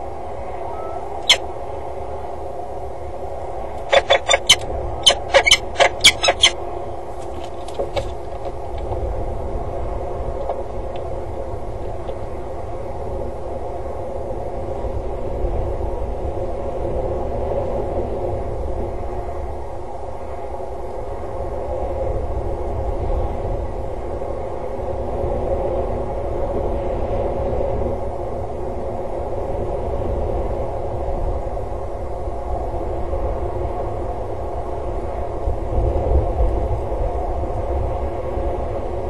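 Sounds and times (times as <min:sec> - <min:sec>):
falcon sharp calls: 0:00.8 - 0:01.4, 0:03.8 - 0:06.6.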